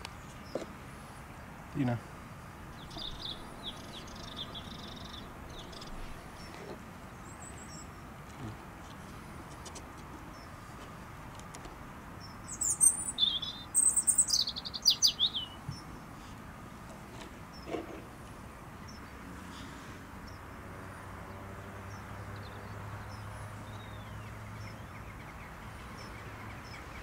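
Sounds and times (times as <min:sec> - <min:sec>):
songbirds chirping and singing: 0:02.6 - 0:08.4, 0:12.1 - 0:19.3, 0:20.2 - 0:27.0.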